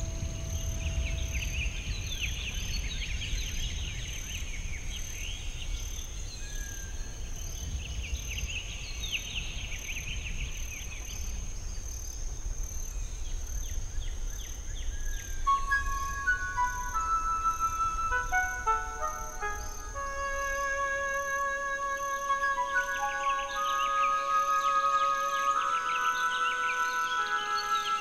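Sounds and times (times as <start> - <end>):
steady high-pitched tone: 0.0 - 3.0, 15.5 - 28.0
low rumble: 0.0 - 3.4
songbirds twittering: 0.0 - 28.0.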